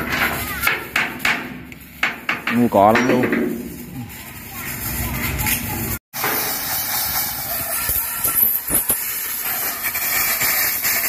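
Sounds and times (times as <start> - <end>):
compressed air blow gun hissing: 6.2 - 11.0.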